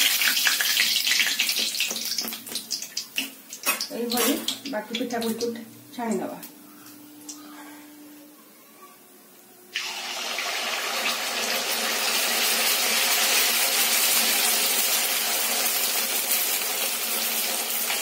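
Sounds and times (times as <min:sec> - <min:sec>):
batter sizzling in hot oil: 0:00.0 - 0:05.5, 0:09.7 - 0:18.0.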